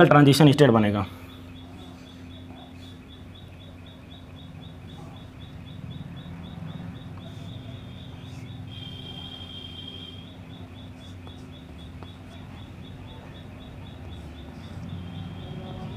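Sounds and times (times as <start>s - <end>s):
chalk scratching on blackboard: 7.1s - 10.1s, 10.8s - 12.8s, 14.0s - 15.9s.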